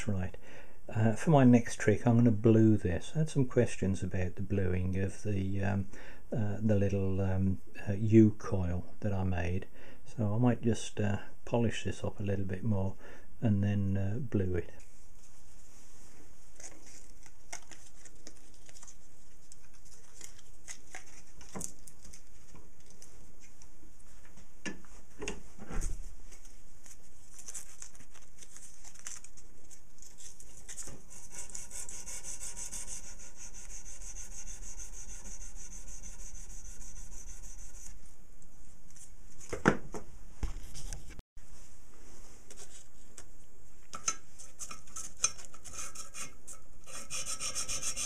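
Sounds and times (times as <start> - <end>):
metal scraping against file: 44.0 - 48.0.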